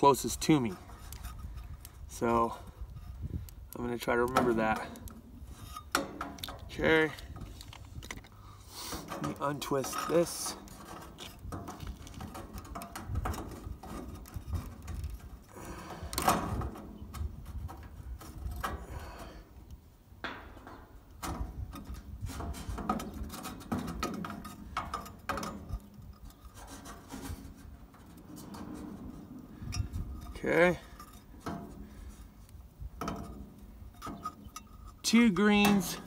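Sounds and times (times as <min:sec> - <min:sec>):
small clicks and rubbing of wires: 0:00.0 - 0:08.4, 0:09.2 - 0:15.5, 0:29.8 - 0:36.0.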